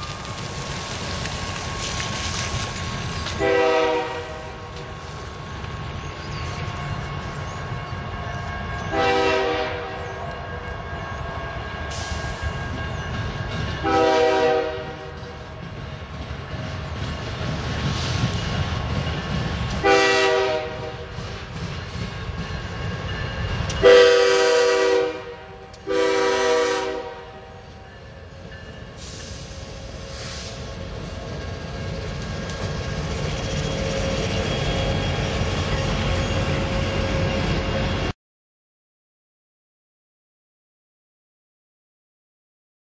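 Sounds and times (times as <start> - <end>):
train rumbling: 0.0 - 38.2
locomotive air horn blasts: 3.4 - 4.8, 8.9 - 10.2, 13.8 - 15.3, 19.8 - 21.1, 23.8 - 27.8.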